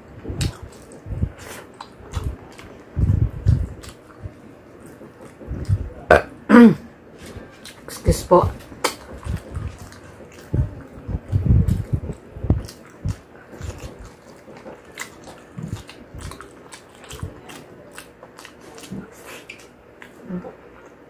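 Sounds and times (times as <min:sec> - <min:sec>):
wet mouth sounds: 0:00.2 - 0:06.3, 0:07.6 - 0:20.6
person chewing fried chicken: 0:00.3 - 0:06.0, 0:07.2 - 0:21.0.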